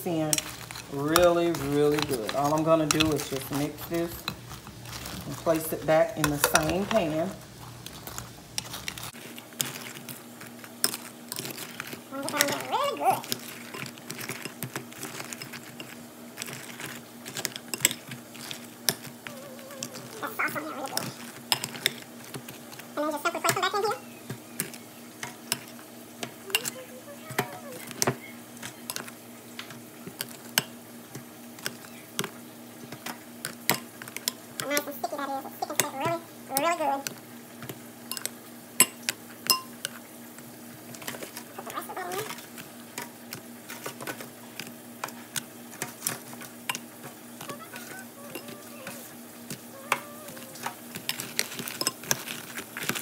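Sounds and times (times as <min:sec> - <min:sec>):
metal tongs clicking on glass and foil: 0:00.2 - 0:07.2, 0:24.6 - 0:29.1, 0:38.1 - 0:40.0, 0:43.8 - 0:53.0
metal tongs tapping glass bowl: 0:38.1 - 0:39.8.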